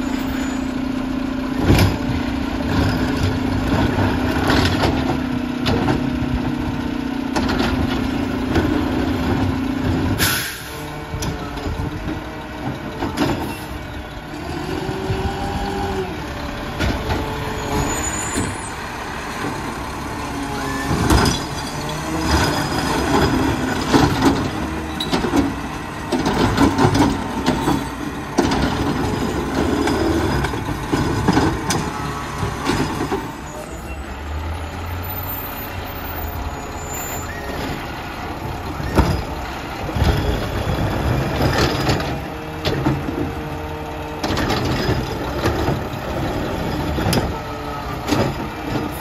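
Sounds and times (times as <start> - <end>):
garbage truck engine running: 0.0 - 49.0
truck rumbling: 0.0 - 49.0
cart knocking and clattering: 20.9 - 33.4.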